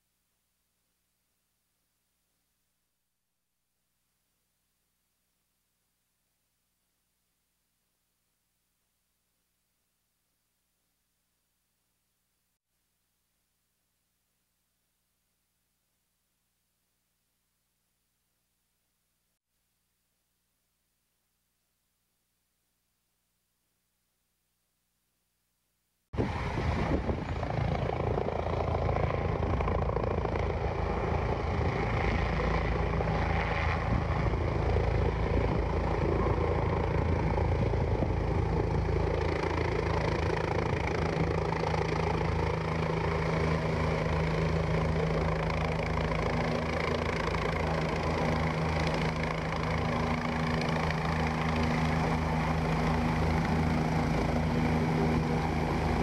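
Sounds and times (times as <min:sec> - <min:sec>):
helicopter rotors beating: 0:26.2 - 0:56.0.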